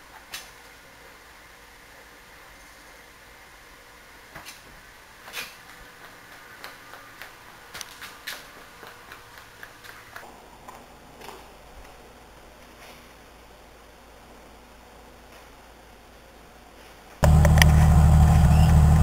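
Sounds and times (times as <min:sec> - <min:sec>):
faint hiss: 0:00.0 - 0:09.0.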